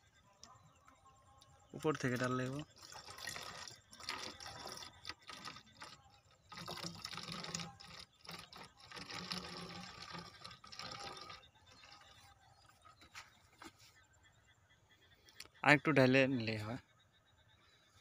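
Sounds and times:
liquid pouring and glugging: 1.8 - 13.1.

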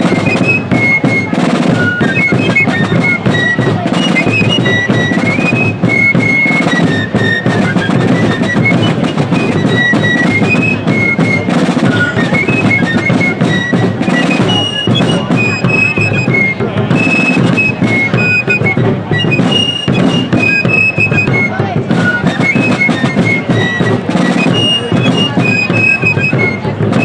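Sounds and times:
fifes playing melody: 0.0 - 27.0
snare drumming: 0.0 - 27.0
bass drum: 7.3 - 24.1.

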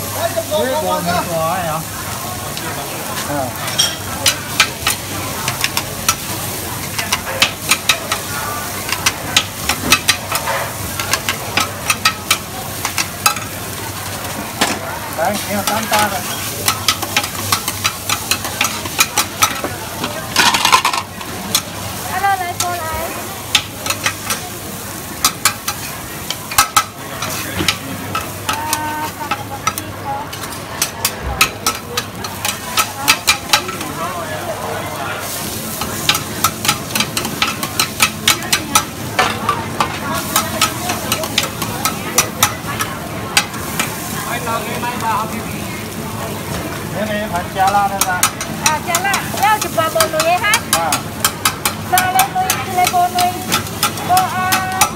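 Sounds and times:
food sizzling on a wok: 0.0 - 54.9
metal spatulas scraping a pan: 14.6 - 21.8.

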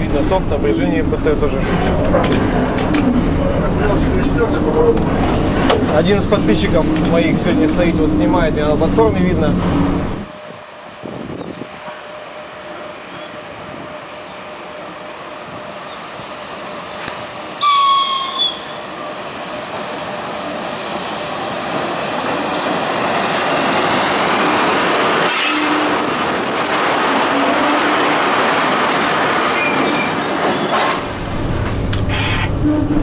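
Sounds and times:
train rumbling over points: 0.0 - 33.0
train horn blast: 17.6 - 18.8, 25.3 - 26.0, 32.3 - 33.0.

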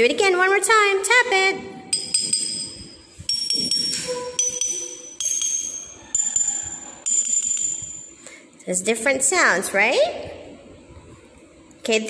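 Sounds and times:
taps on glass bottles ringing: 1.9 - 8.2.

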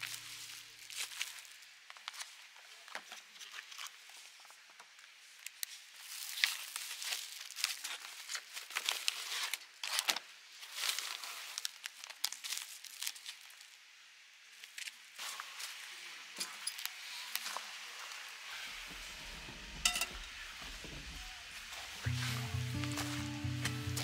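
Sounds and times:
crinkling and crackling: 0.0 - 13.8.

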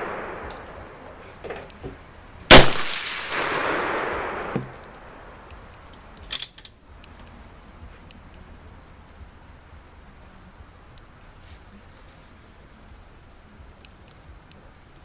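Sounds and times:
rifle shot with ringing tail: 2.5 - 4.8.

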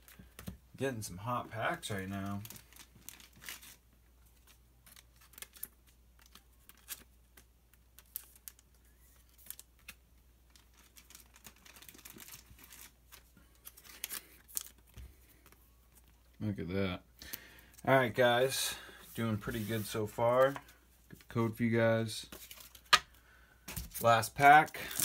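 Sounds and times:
foil wrapper crinkling: 1.9 - 3.8, 4.4 - 16.0, 24.1 - 25.0
trading cards crinkling and clicking: 1.9 - 16.4.

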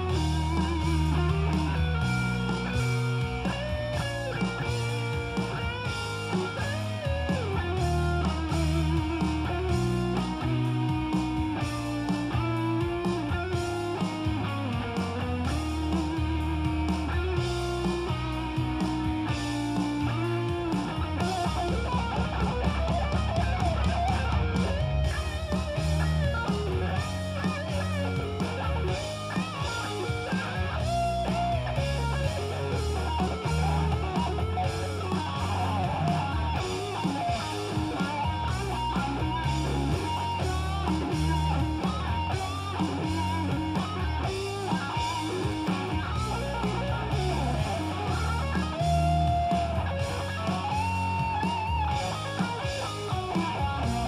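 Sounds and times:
bass line: 0.0 - 54.0
electric guitar lead melody: 0.0 - 54.0.

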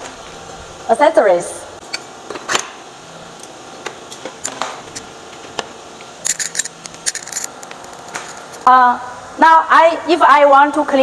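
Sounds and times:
metal vacuum parts clicking: 6.2 - 8.6.

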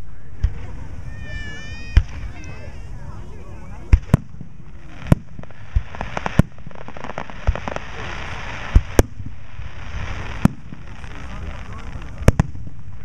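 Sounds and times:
fizzing crackle of fireworks: 0.0 - 13.0
firework shells bursting: 3.9 - 13.0.

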